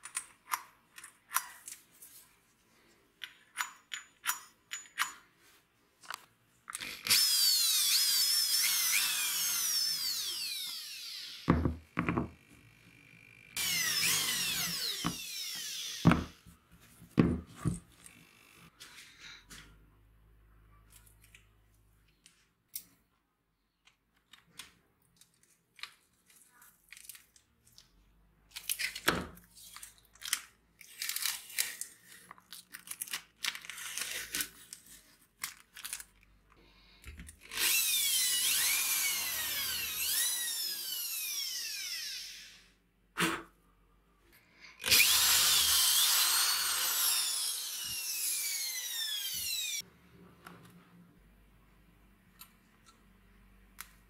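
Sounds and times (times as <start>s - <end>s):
power tool whining: 6.8s - 11.7s, 12.4s - 16.4s, 37.4s - 42.7s, 44.8s - 49.8s.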